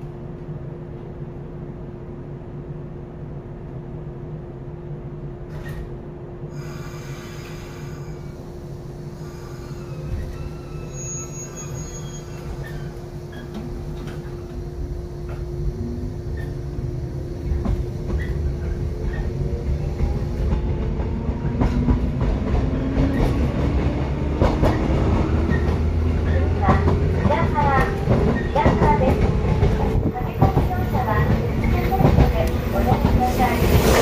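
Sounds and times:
train running gear rumble: 0:00.0 - 0:34.0
train steady hum: 0:00.0 - 0:34.0.

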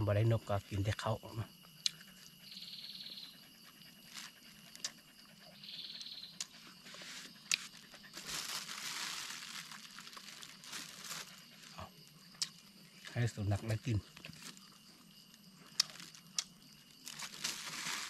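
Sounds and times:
crinkling and rustling: 0:06.8 - 0:14.9, 0:15.7 - 0:18.0.

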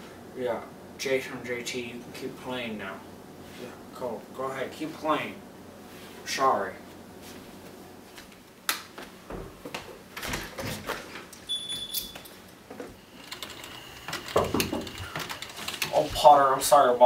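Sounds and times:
keyboard typing: 0:13.2 - 0:16.0
door knocks and clicks: 0:14.3 - 0:15.0.

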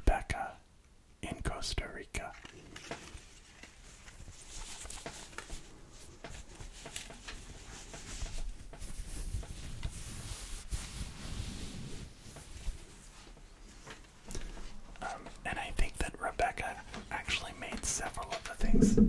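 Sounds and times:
cloth pouch rustling: 0:02.8 - 0:14.2
small irregular clicks: 0:06.2 - 0:10.0.

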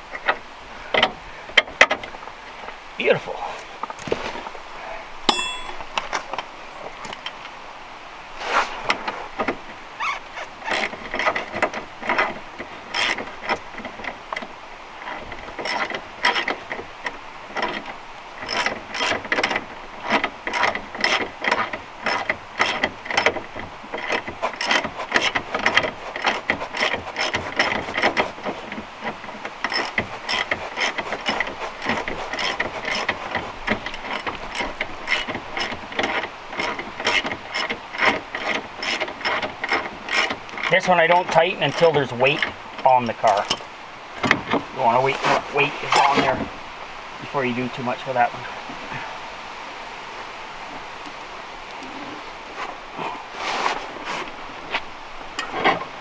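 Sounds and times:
hand ratchet clicking: 0:10.7 - 0:14.5, 0:15.6 - 0:16.6, 0:17.6 - 0:42.6.

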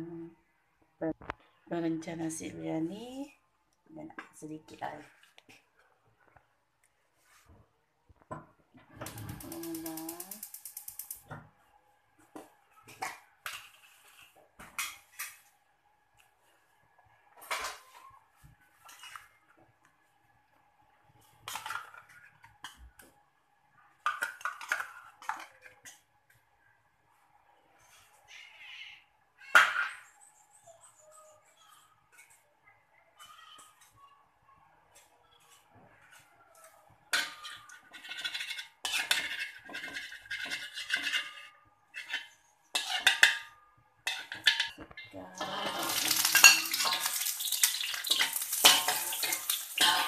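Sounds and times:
metal spoon clinking in a wok: 0:42.0 - 0:50.0.

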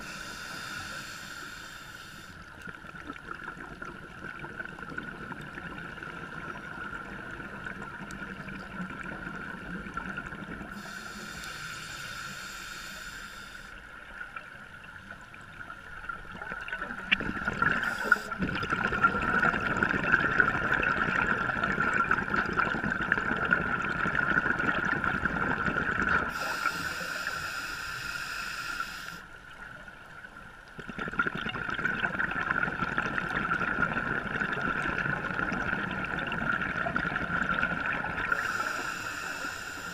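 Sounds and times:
exhaled bubbles gurgling: 0:02.6 - 0:11.4, 0:16.0 - 0:27.3, 0:30.7 - 0:39.9
scuba regulator hissing: 0:10.8 - 0:13.7, 0:17.8 - 0:18.4, 0:26.3 - 0:29.2, 0:38.3 - 0:39.9.

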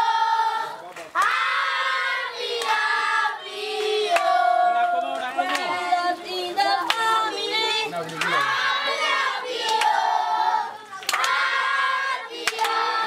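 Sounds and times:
children singing: 0:00.0 - 0:13.0
hand claps: 0:02.6 - 0:02.9, 0:03.8 - 0:05.8, 0:06.8 - 0:07.2, 0:08.0 - 0:08.6, 0:09.6 - 0:10.0, 0:11.0 - 0:11.5, 0:12.4 - 0:12.9.

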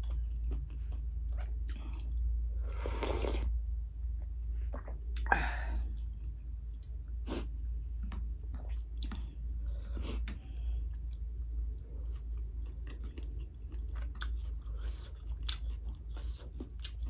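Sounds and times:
slurping broth: 0:02.7 - 0:03.5
chewing: 0:08.0 - 0:17.0.

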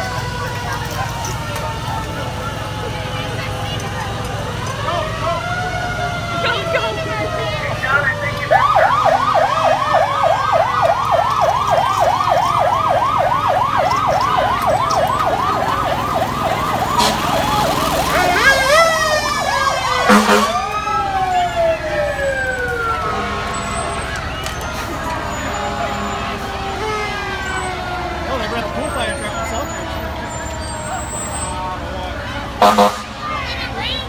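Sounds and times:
fire truck siren: 0:00.0 - 0:34.0
short loud horn blast: 0:20.0 - 0:20.6, 0:32.6 - 0:33.2.

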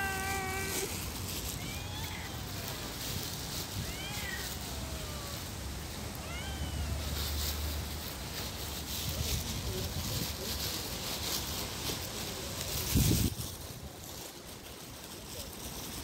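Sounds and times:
cat meowing: 0:00.0 - 0:03.0, 0:03.6 - 0:05.5, 0:06.1 - 0:07.4.

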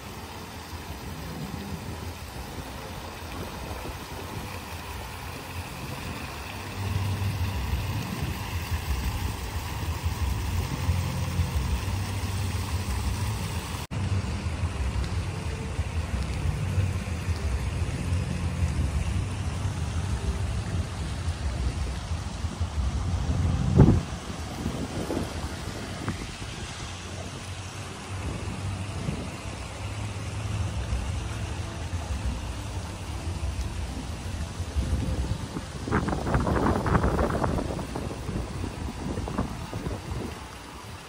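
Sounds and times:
fountain splashing into pool: 0:00.0 - 0:41.0
low rumble: 0:06.8 - 0:29.6.

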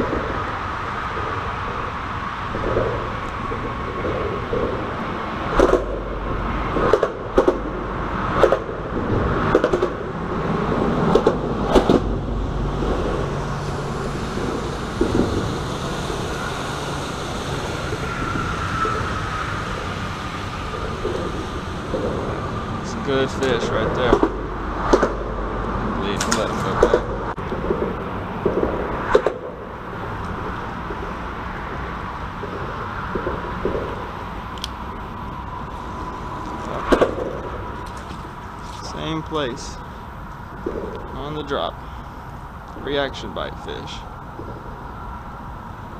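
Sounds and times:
traffic rumble overhead: 0:00.0 - 0:45.9
sharp knocks and clicks: 0:05.6 - 0:06.0, 0:06.7 - 0:07.7, 0:08.3 - 0:08.8, 0:09.5 - 0:10.0, 0:11.1 - 0:12.1, 0:23.4 - 0:25.2, 0:26.1 - 0:29.6.

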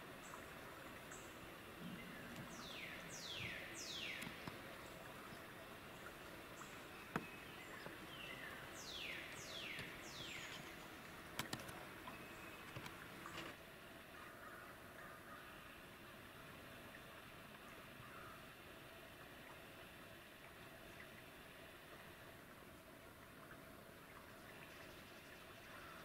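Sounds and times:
songbird whistling: 0:02.5 - 0:04.4.

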